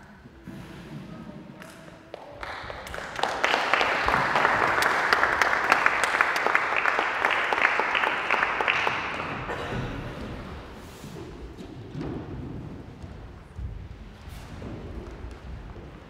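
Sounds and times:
audience applauding: 2.2 - 10.5.

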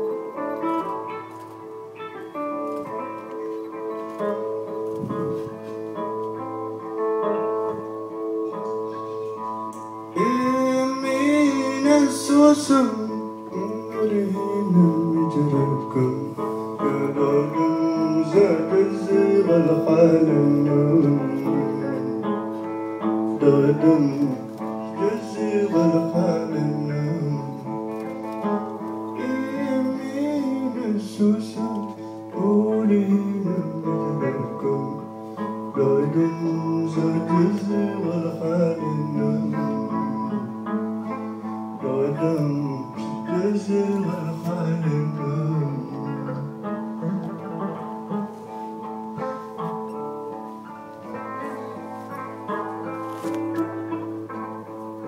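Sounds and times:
electric guitar through pa: 0.0 - 55.0
man singing: 10.0 - 48.4.

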